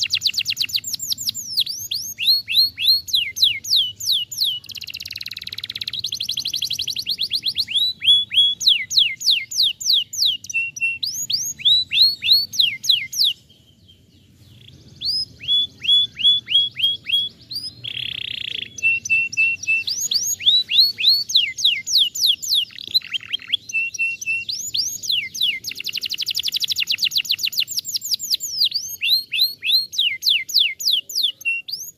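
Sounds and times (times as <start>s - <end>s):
canary singing trills: 0.0s - 31.9s.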